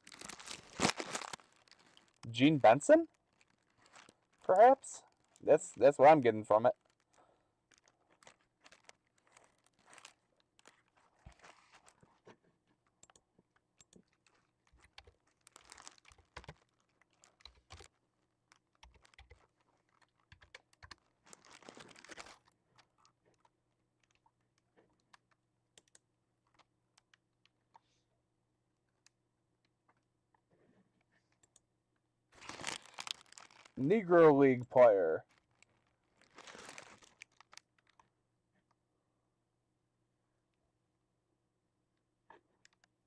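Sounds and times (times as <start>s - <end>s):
tissue paper rustling: 0.0s - 2.2s, 3.3s - 5.4s, 7.7s - 12.1s, 21.2s - 22.5s, 32.4s - 33.8s, 35.3s - 37.9s.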